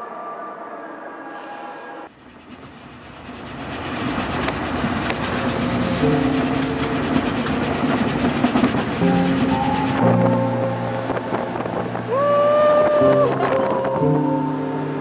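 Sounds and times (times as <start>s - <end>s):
moving train noise: 0.0s - 15.0s
music notes: 5.3s - 15.0s.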